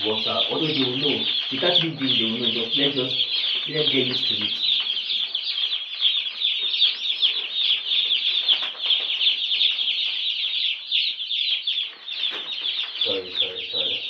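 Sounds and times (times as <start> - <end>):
chicks peeping: 0.0 - 14.0.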